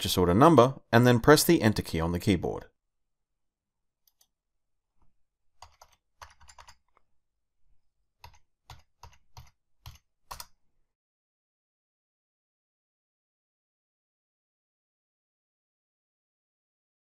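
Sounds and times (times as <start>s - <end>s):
faint keyboard keystrokes: 5.6s - 7.1s, 8.2s - 10.6s.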